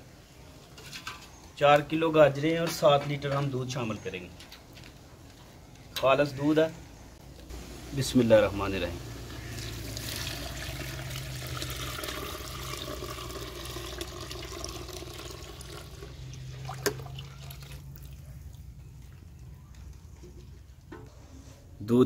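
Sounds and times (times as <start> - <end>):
milk pouring into a pot: 9.3 - 18.2.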